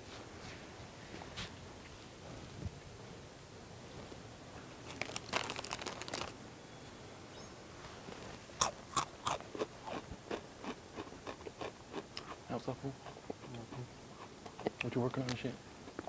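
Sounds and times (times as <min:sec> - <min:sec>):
loud chip crunching: 0:04.8 - 0:06.4, 0:08.6 - 0:12.4.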